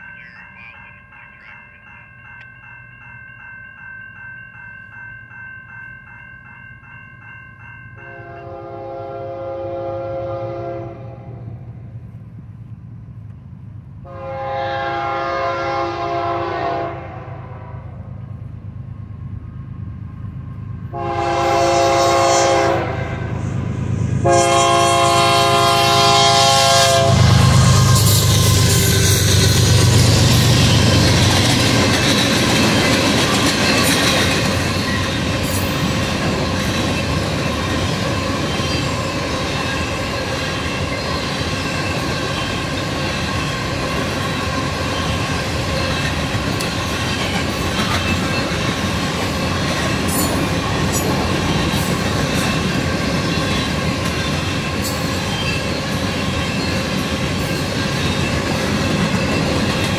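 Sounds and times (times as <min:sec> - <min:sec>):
crossing bell ringing rapidly: 0:00.0 - 0:08.9, 0:25.4 - 0:59.9
locomotive air horn: 0:08.0 - 0:11.6, 0:14.0 - 0:18.0, 0:20.9 - 0:23.6, 0:24.2 - 0:29.8
train wheels turning: 0:25.9 - 0:59.9.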